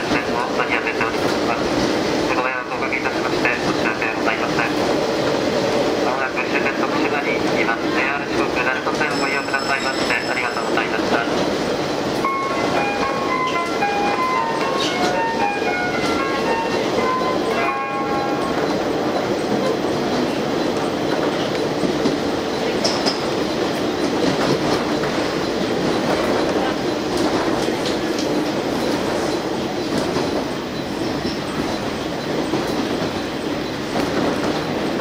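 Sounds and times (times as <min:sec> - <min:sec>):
railcar rumble on track: 0:00.0 - 0:35.0
announcement chime: 0:08.9 - 0:11.3, 0:12.2 - 0:18.9.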